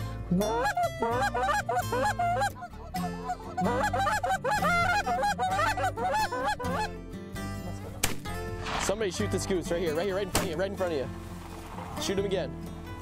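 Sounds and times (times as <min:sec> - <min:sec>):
geese honking: 0:00.3 - 0:07.0.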